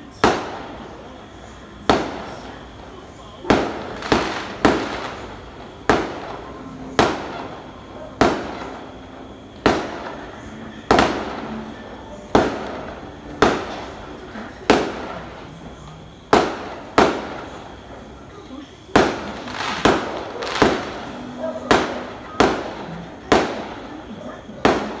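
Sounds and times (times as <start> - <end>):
fireworks bangs echoing: 0.0 - 18.2, 18.8 - 25.0.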